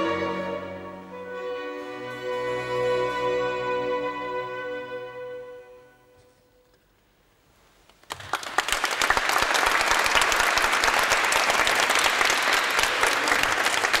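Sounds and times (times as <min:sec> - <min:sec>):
audience applauding: 0:08.0 - 0:14.0.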